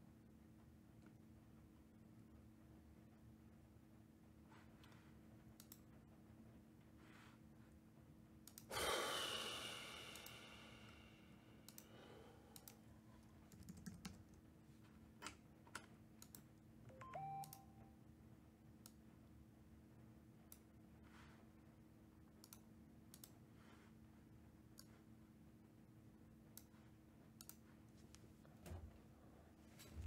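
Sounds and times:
computer keyboard and mouse clicks: 5.6 - 5.9, 11.7 - 11.9, 12.6 - 12.8, 13.4 - 14.4, 15.2 - 16.5, 17.1 - 17.6, 22.4 - 23.4.

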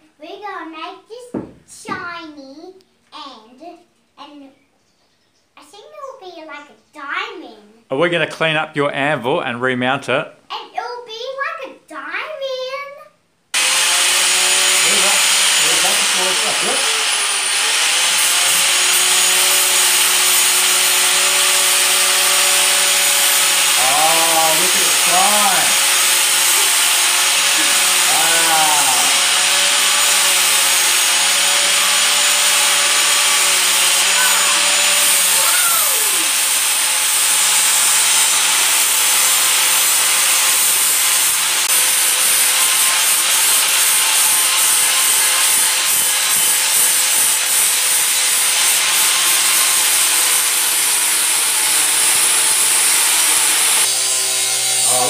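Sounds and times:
angle grinder grinding steel: 13.6 - 55.0.

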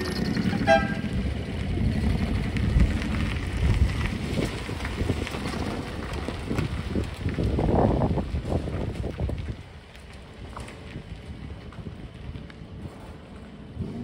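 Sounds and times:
small truck engines running: 0.0 - 14.0
tyres on gravel: 0.0 - 14.0
wind on microphone: 0.4 - 9.8.

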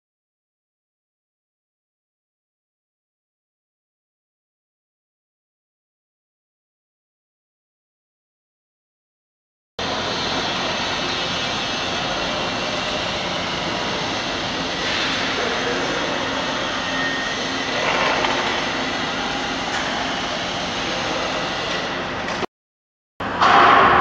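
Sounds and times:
loud construction machinery: 9.8 - 22.5.

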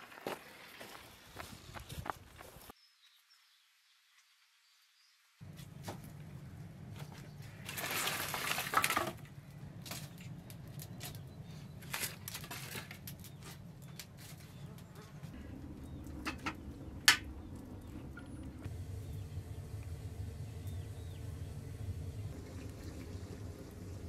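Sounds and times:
wood fire rumbling: 5.6 - 24.0
fire crackling and popping: 15.6 - 24.0.

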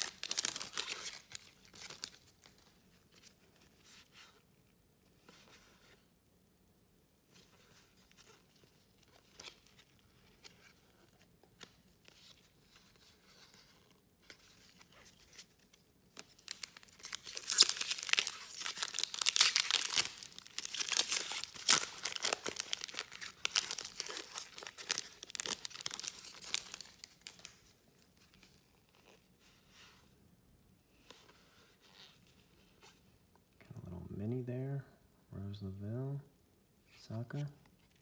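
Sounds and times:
wrapper tearing and crinkling: 0.0 - 2.6, 16.2 - 27.6.

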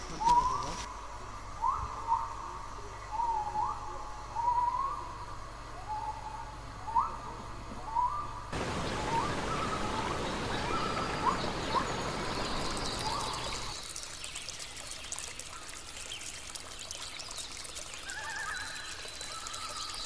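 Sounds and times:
bird short rising calls: 8.0 - 13.7
steady rushing noise: 8.6 - 13.0.

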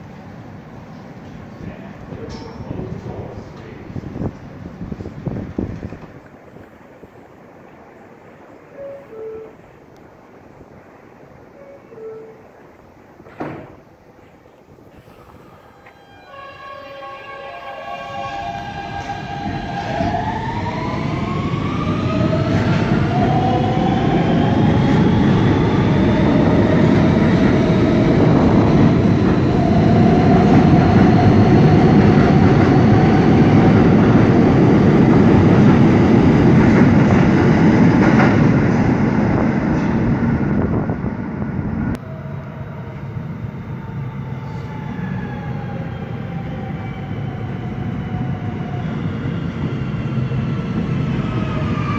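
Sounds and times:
subway train motors whining: 0.0 - 51.9
wheels rumbling on rails: 0.1 - 16.3.

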